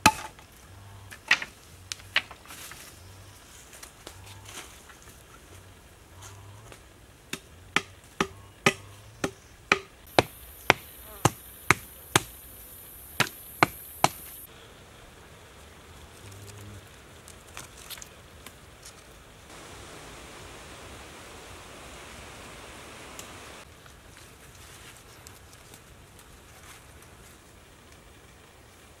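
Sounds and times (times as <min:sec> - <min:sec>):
wooden strikes on stakes: 0:00.0 - 0:00.4, 0:07.3 - 0:12.5, 0:13.1 - 0:14.3
high steady hiss: 0:00.0 - 0:29.0.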